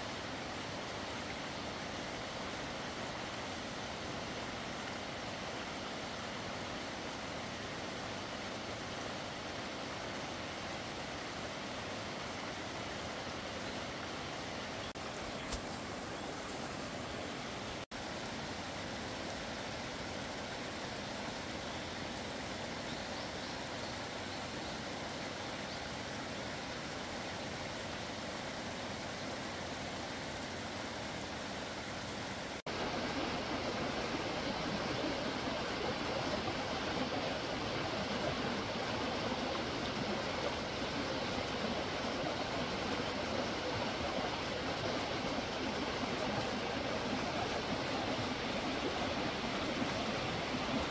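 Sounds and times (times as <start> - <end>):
stream water rushing: 0.0 - 50.9.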